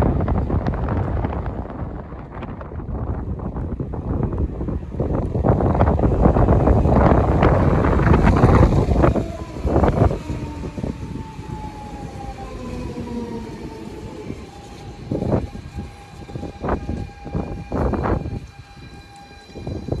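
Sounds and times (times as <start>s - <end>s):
train rushing past: 0.0s - 20.0s
electric traction motors whining: 5.2s - 20.0s.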